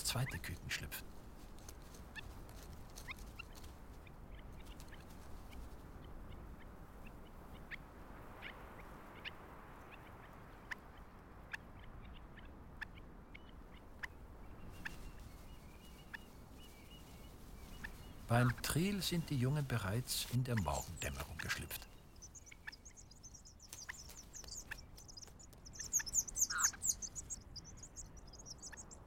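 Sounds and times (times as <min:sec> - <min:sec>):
low steady hiss: 0:00.0 - 0:29.0
high bird chirps: 0:16.9 - 0:29.0.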